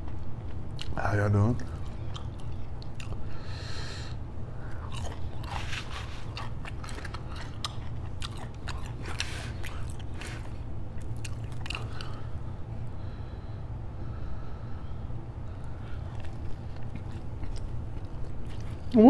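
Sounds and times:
chewing with wet crunching: 0.0 - 3.5, 4.5 - 12.5, 15.4 - 19.0
steady low hum: 0.0 - 19.0.

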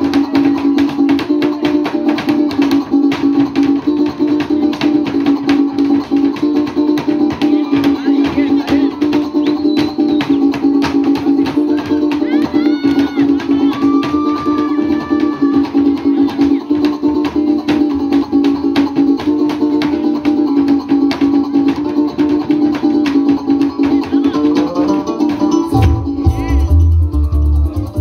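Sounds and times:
rattling percussion beat: 0.0 - 28.0
plucked and strummed strings: 15.0 - 28.0
deep bass: 25.7 - 28.0.

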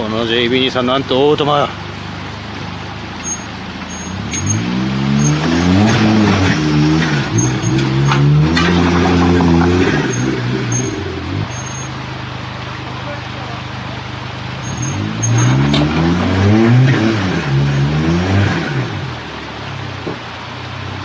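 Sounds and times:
car engine revving under load: 0.0 - 21.0.

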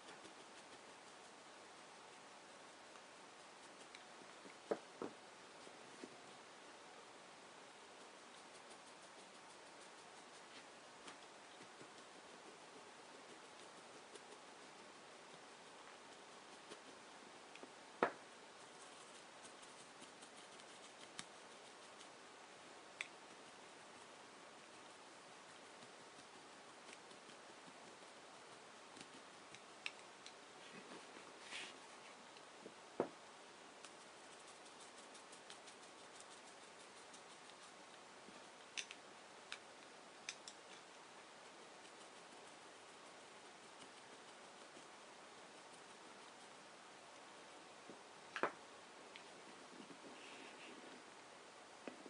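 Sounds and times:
faint small clicks and taps: 38.6 - 41.0.

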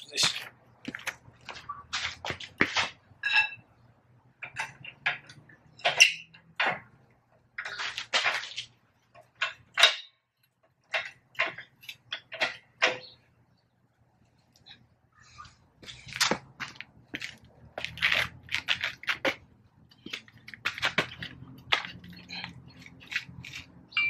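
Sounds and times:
metal tools clanking: 4.4 - 6.8, 9.2 - 10.2, 10.9 - 13.2.

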